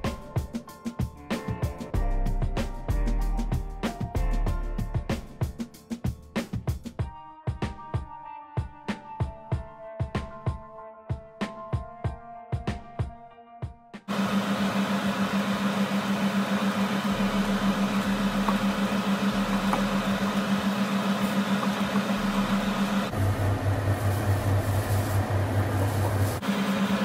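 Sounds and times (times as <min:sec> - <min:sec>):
low machine drone: 0:14.2 - 0:27.0.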